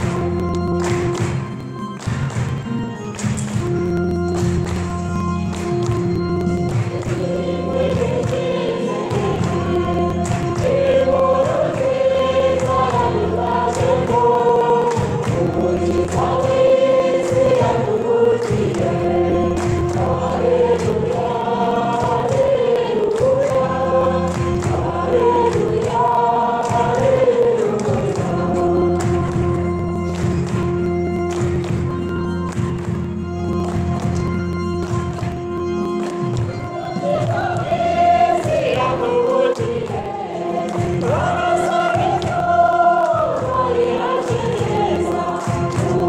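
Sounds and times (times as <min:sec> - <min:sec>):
instrumental backing with beat: 0:00.0 - 0:46.0
choir singing gospel: 0:05.5 - 0:30.9, 0:36.7 - 0:46.0.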